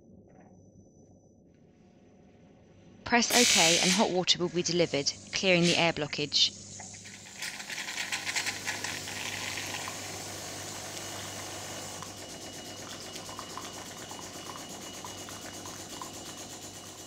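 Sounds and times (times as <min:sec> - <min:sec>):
hot water streaming into glass: 0:07.0 - 0:17.0
pump humming: 0:07.0 - 0:17.0.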